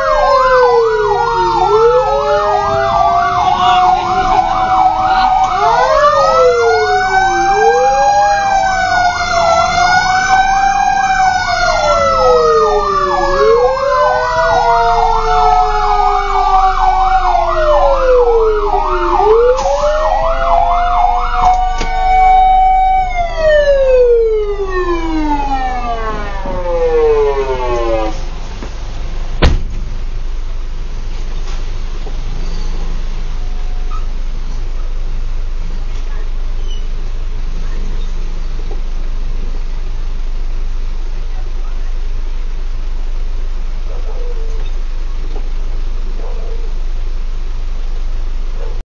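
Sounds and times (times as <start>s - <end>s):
fast warbling siren yelp: 0.0s - 28.4s
wailing siren: 0.0s - 28.4s
sharp knock: 29.4s - 29.8s.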